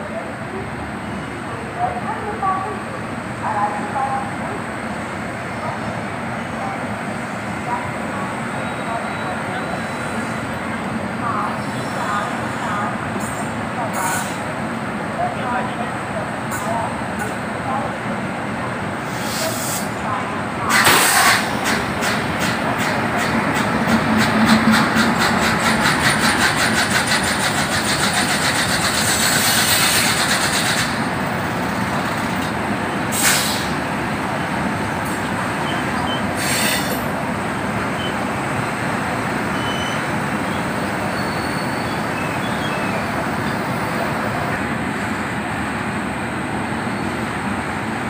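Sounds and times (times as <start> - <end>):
short hisses: 33.1 - 33.8.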